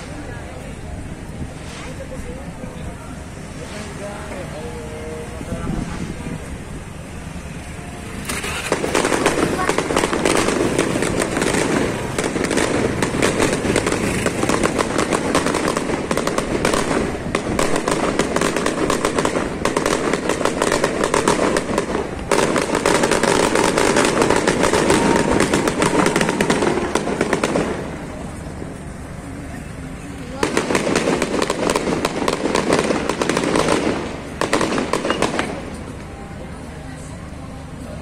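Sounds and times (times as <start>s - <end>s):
fireworks crackling: 0.0s - 38.0s
street traffic with motorcycles: 0.0s - 38.0s.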